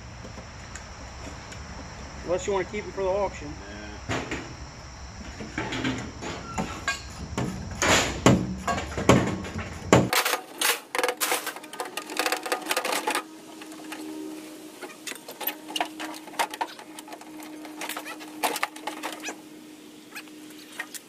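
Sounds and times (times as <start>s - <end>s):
hard objects clanking: 5.6s - 14.1s, 15.1s - 19.4s.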